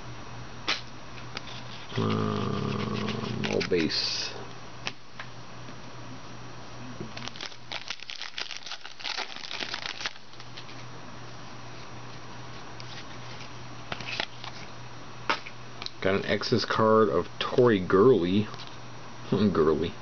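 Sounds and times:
foil wrapper crinkling: 0:07.2 - 0:10.8.

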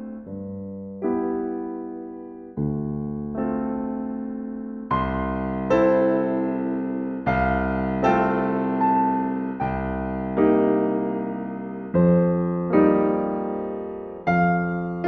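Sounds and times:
soft piano chords: 0:00.0 - 0:15.0.

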